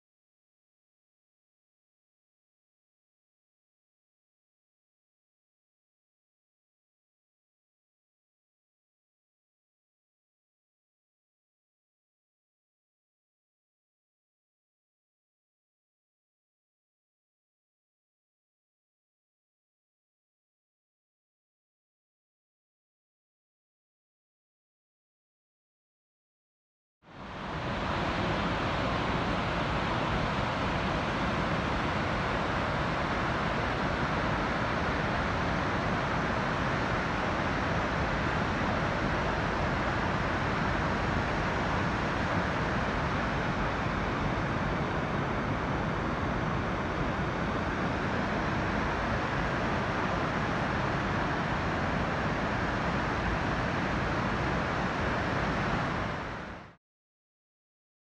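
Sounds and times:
waterfall and rapids rushing: 27.1 - 56.8.

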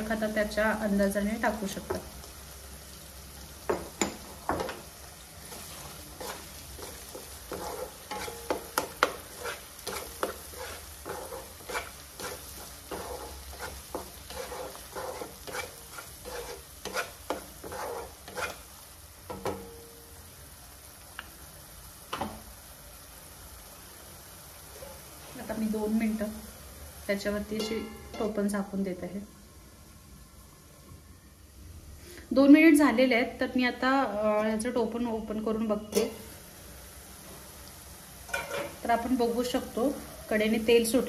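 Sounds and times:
oil sizzling: 0.0 - 41.0
wooden spatula scraping a pan: 4.5 - 18.7, 38.3 - 38.9.

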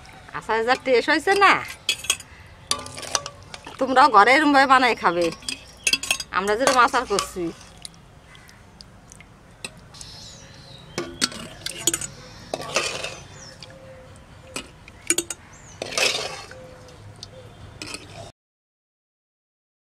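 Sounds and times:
spoon scraping a pan: 0.7 - 4.0, 5.0 - 7.8, 11.0 - 13.7, 14.5 - 16.6, 17.8 - 18.3
spoon clinking against glass: 11.0 - 13.2.

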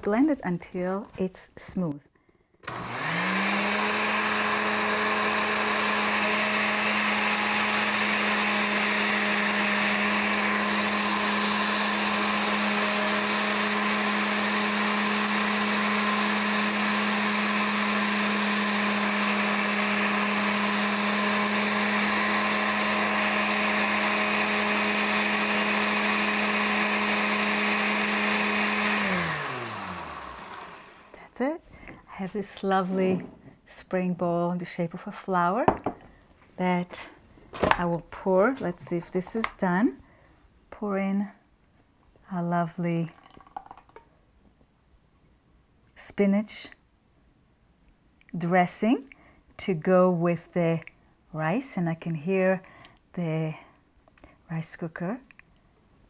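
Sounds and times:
countertop blender running: 2.6 - 31.2.

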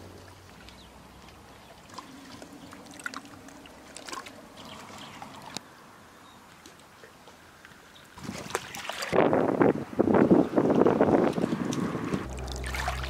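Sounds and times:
small splashes and drips: 0.0 - 5.6, 6.5 - 9.4, 11.2 - 13.0
water lapping against stones: 0.0 - 5.6, 6.5 - 9.6, 10.6 - 13.0
water trickling: 0.0 - 5.6, 11.0 - 13.0.

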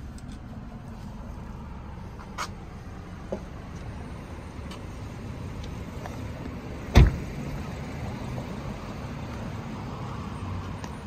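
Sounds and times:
car door shutting: 6.9 - 7.4.

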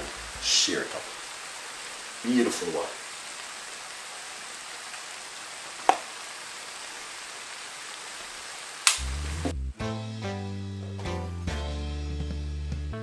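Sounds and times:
vegetables sizzling in a pan: 0.0 - 9.5
sharp click: 8.8 - 9.1.

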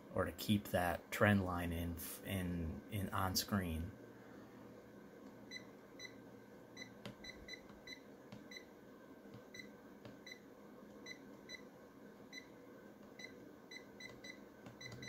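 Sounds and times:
multimeter key beeps: 6.8 - 8.7, 13.2 - 15.0.

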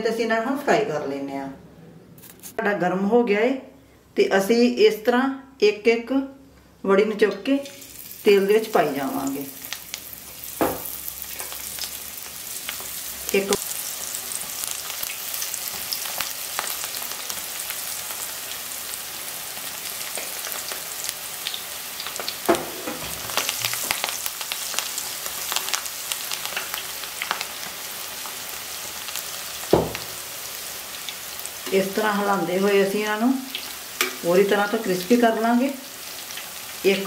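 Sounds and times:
food sizzling in hot oil: 7.6 - 37.0.

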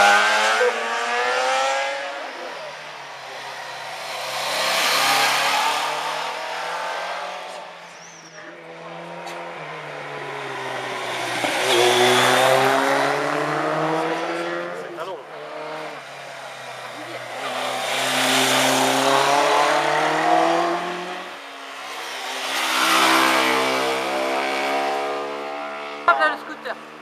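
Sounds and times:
motorcycle approaching and accelerating: 0.0 - 27.0
motorcycle riding away: 8.5 - 15.9, 16.7 - 21.3, 22.0 - 26.7.

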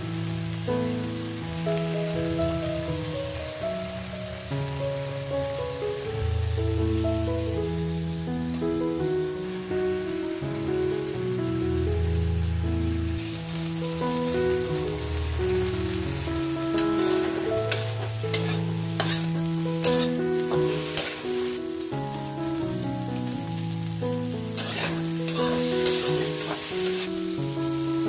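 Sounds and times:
background music: 0.0 - 28.0
vegetables sizzling in frying pan: 0.0 - 28.0
spatula scraping pan: 16.8 - 21.3, 24.6 - 27.1.

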